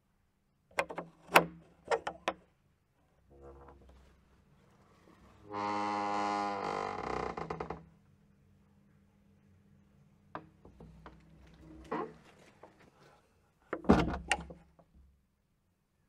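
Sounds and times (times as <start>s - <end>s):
door hinges creaking: 5.4s - 7.8s, 10.8s - 12.2s
door closing bang: 13.8s - 14.5s.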